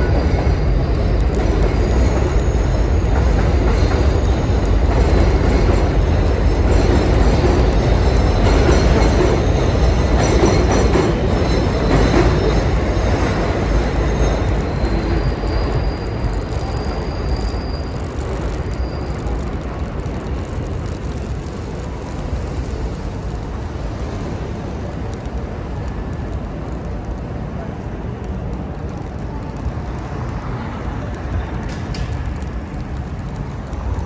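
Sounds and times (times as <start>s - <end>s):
high wheel squeal: 0.0s - 20.4s
elevated train running overhead: 0.0s - 34.0s.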